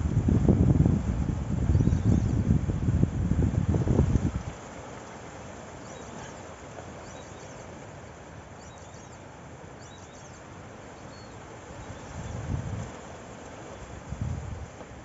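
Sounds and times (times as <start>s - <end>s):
wind buffeting microphone: 0.0s - 4.6s, 11.8s - 13.1s, 13.9s - 15.0s
faint high bird chirps: 1.7s - 2.4s, 5.8s - 7.8s, 8.6s - 12.4s.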